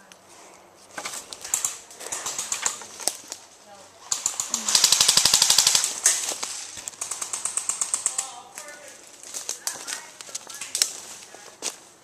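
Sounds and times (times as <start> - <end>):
airsoft gun firing bursts: 1.5 - 2.8, 4.1 - 6.2, 7.0 - 8.5.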